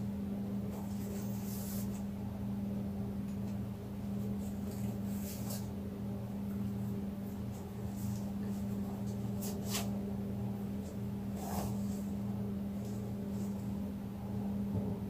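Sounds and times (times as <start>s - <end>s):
steady low hum: 0.0s - 15.0s
faint brushing rustles: 0.7s - 2.2s, 4.0s - 5.8s, 6.6s - 13.8s.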